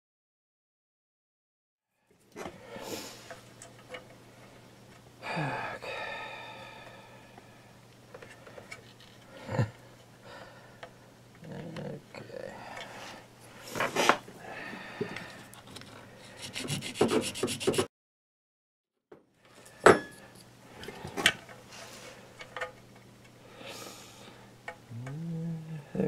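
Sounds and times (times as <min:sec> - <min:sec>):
hand file rasping: 0:16.2 - 0:17.9.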